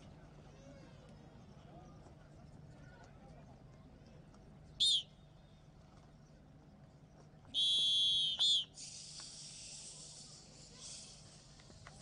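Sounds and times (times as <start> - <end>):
whistle blasts: 4.8 - 5.2, 7.5 - 8.9
steady hiss: 8.6 - 12.0.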